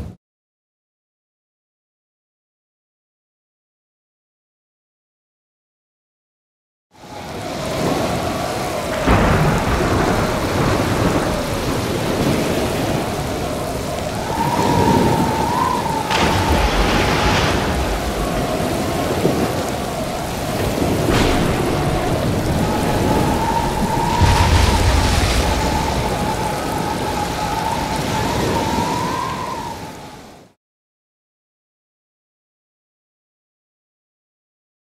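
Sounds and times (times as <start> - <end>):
surf: 7.0 - 30.5
heavy rain: 7.0 - 30.6
wavering whistling wind: 7.0 - 30.6
thunder cracks: 7.1 - 30.0
low rumble: 16.1 - 28.1.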